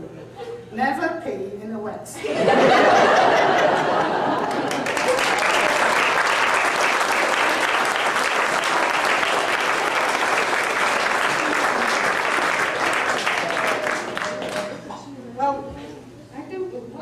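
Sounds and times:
audience applauding: 3.2s - 15.0s.

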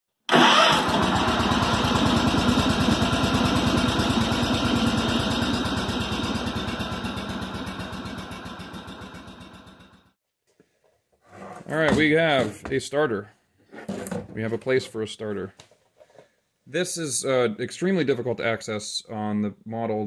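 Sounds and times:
engine idling: 0.3s - 10.1s.

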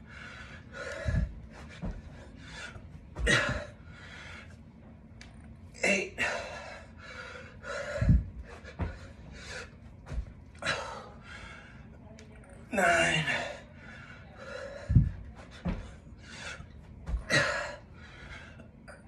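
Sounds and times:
man panting hard: 0.0s - 4.6s, 6.2s - 11.8s, 13.2s - 18.6s.

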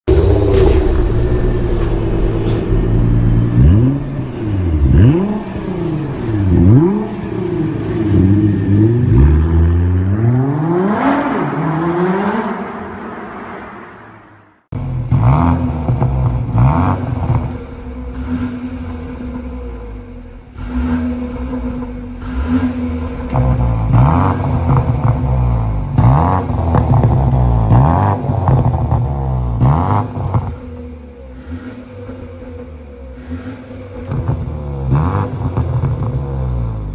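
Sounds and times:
car engine idling and blipping: 0.0s - 10.5s, 14.7s - 36.9s
engine revving: 0.0s - 36.9s.

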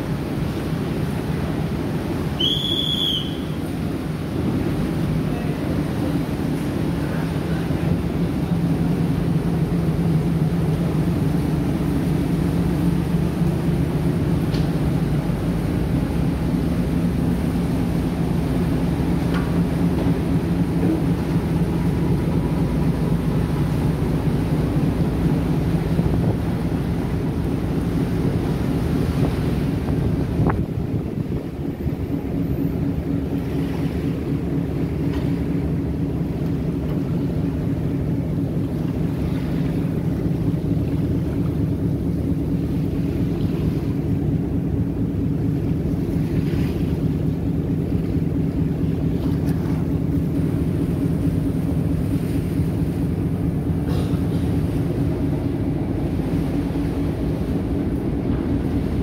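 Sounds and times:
ferry engine humming: 0.0s - 59.0s
water wash: 0.0s - 59.0s
wind on microphone: 28.9s - 32.3s.

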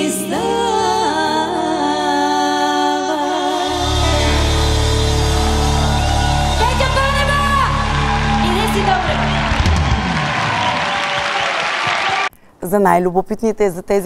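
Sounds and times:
women singing in harmony: 0.0s - 4.8s.

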